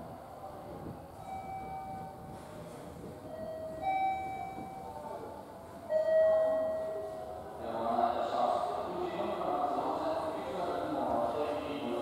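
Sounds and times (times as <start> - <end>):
electronic bell-like chime: 1.2 - 2.1.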